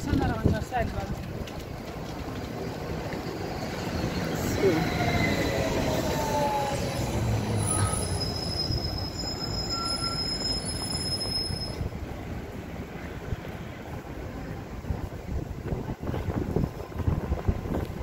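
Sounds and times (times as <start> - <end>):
street traffic: 0.0 - 18.0
trolleybus moving off: 0.0 - 18.0
high-pitched steady squeal: 3.1 - 11.9.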